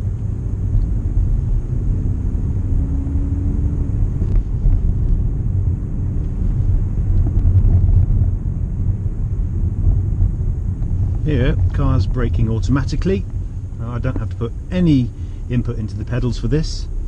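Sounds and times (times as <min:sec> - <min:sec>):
faint engine note rising: 0:00.0 - 0:06.8
road and engine rumble in car: 0:00.0 - 0:17.0.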